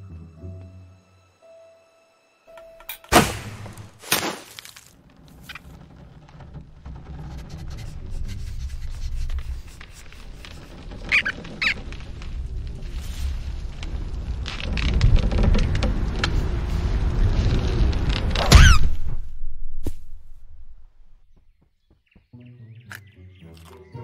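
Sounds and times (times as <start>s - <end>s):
low rumble: 5.0s - 21.4s
short high squeaks: 7.3s - 12.1s, 18.4s - 19.0s.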